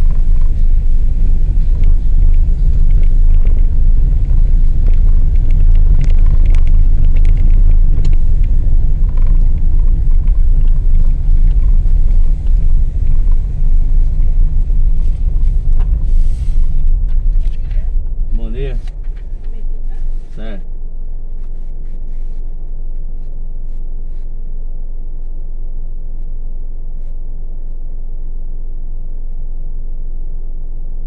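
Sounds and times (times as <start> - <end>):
light rattles and clicks: 0.0 - 20.5
tyres on cobbled road: 0.0 - 23.4
car engine: 0.0 - 25.7.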